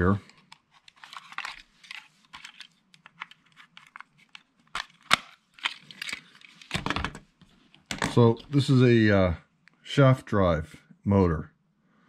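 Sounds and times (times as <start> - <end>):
plastic parts rustling: 0.0 - 7.2, 7.8 - 8.5.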